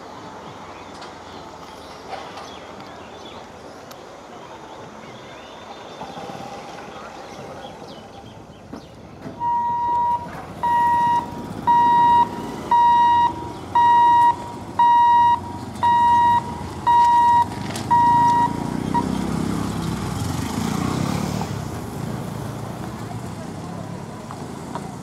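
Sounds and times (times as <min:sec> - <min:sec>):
motorcycle and car engines: 0:05.9 - 0:25.0
level crossing warning beeps: 0:09.4 - 0:19.4.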